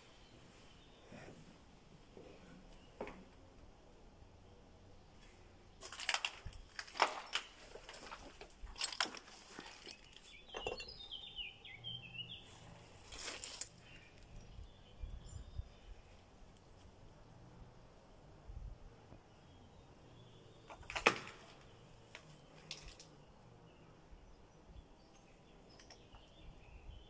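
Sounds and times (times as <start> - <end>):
bird chirps: 9.8 - 12.8
footsteps crunching on dry ground: 12.5 - 14.0.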